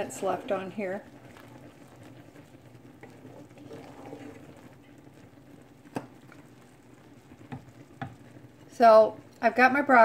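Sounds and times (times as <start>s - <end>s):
wooden spoon stirring in a pot: 0.0s - 10.0s.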